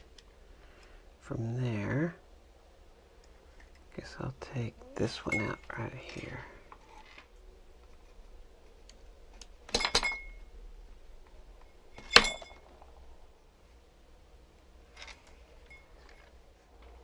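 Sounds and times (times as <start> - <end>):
metal tools clinking: 5.2 - 6.4, 9.7 - 10.4, 12.0 - 12.9.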